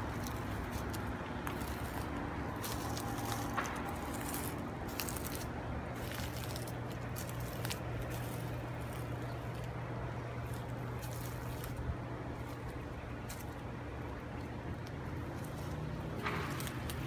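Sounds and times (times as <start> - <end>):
footsteps on wood-chip mulch: 0.0 - 17.0
steady low hum: 0.0 - 17.0.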